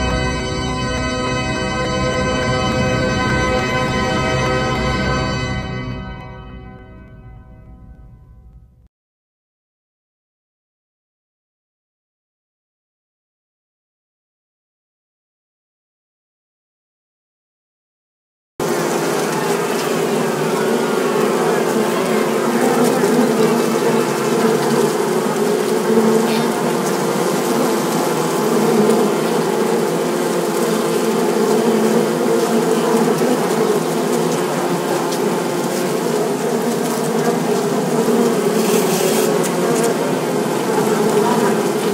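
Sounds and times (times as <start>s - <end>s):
bees buzzing: 0.0s - 6.6s, 18.6s - 41.9s.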